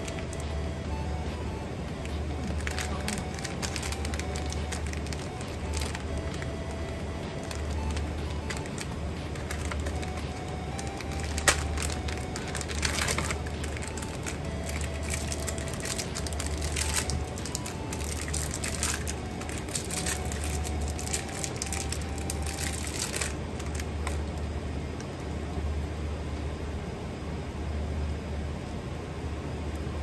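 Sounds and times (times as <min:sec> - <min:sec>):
quiet background music: 0:00.0 - 0:30.0
crunching and crackling: 0:02.0 - 0:24.5.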